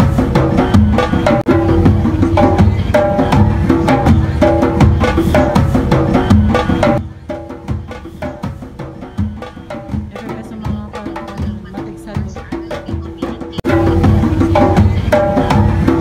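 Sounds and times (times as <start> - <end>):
low drum beats: 0.0 - 16.0
pitched percussion strikes: 0.0 - 16.0.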